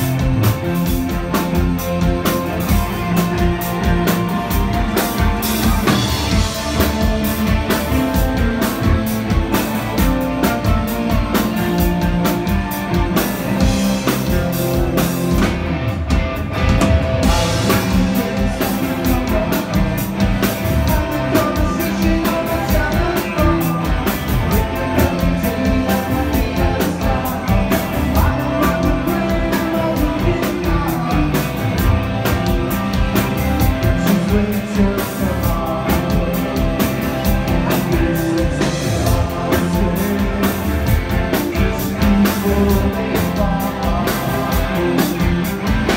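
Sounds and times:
drum kit steady beat: 0.0s - 45.9s
guitars: 0.0s - 45.9s
live rock band playing: 0.0s - 45.9s
person singing: 17.2s - 31.9s, 33.8s - 45.9s.

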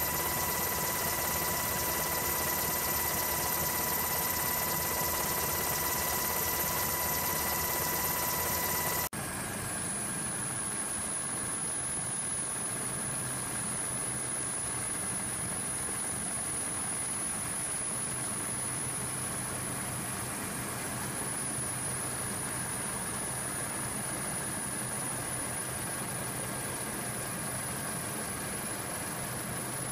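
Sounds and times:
aircraft engine drone: 0.0s - 12.6s.

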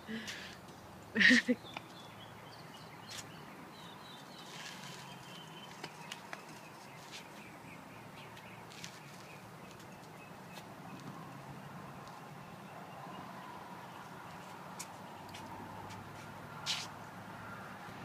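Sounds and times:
small birds chirping: 0.1s - 16.0s.

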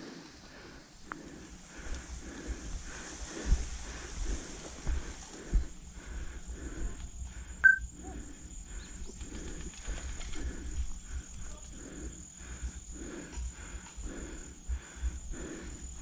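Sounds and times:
footsteps on woodland ground: 0.0s - 7.5s.

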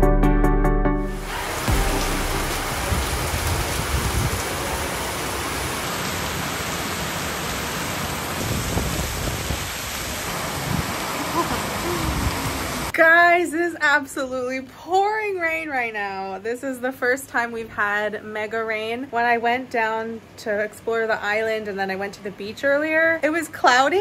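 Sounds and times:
heavy rain pouring: 1.0s - 12.9s.

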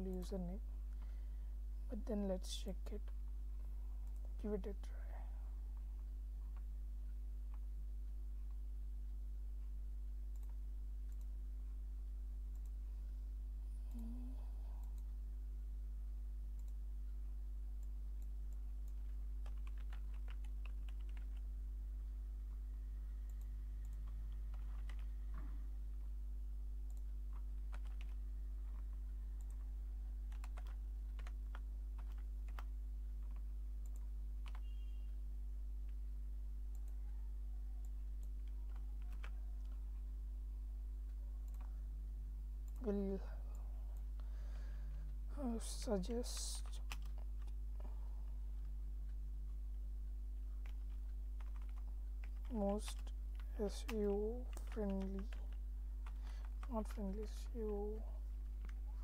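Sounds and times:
steady low hum: 0.0s - 59.0s
keyboard keys tapping: 17.8s - 21.4s, 26.9s - 29.7s, 30.3s - 34.8s, 37.8s - 39.8s, 50.6s - 58.8s.

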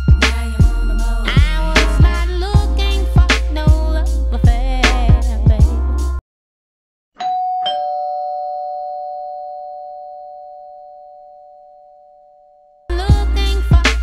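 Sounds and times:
music with a beat: 0.0s - 6.2s, 12.9s - 14.0s
two-tone doorbell chime: 7.2s - 12.9s.

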